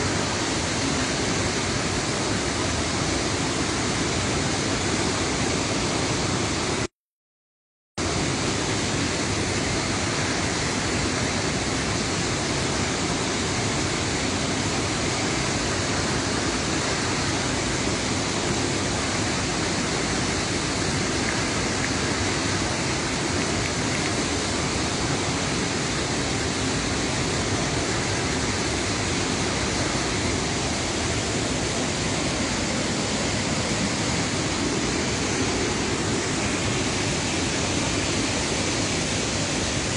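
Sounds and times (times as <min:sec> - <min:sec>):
water rushing over spillway: 0:00.0 - 0:06.9, 0:08.0 - 0:39.9.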